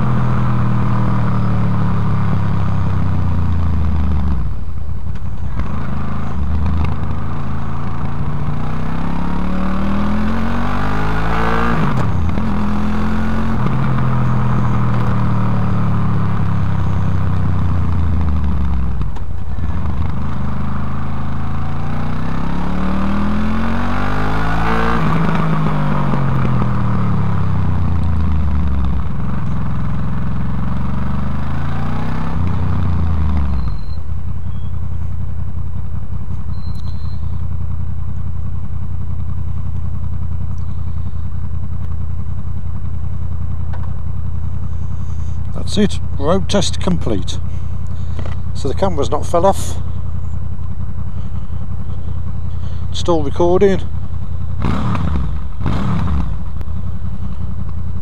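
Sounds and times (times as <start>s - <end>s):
motorcycle engine idling: 0.0s - 9.0s, 11.6s - 24.2s, 24.9s - 58.0s
motorcycle engine revving: 0.0s - 58.0s.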